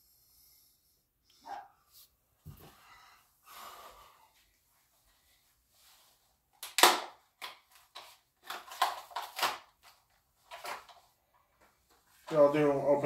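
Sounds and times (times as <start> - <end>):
blister pack tearing: 6.6 - 9.7
plastic crackling: 6.6 - 11.0.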